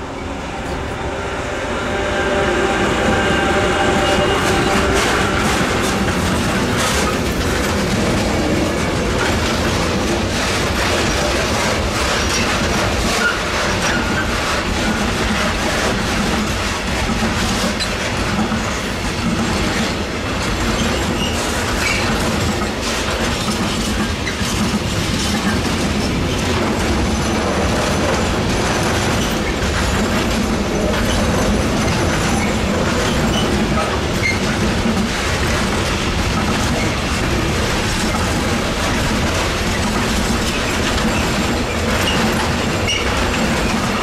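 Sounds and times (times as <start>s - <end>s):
high wheel squeal: 0.0s - 7.2s, 42.0s - 43.2s
freight train rumbling: 0.0s - 44.0s
wheels clicking over rail joints: 5.4s - 44.0s.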